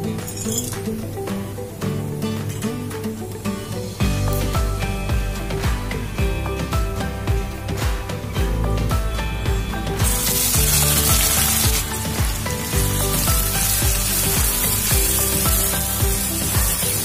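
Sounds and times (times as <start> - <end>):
onions sizzling in hot oil: 10.0 - 17.0.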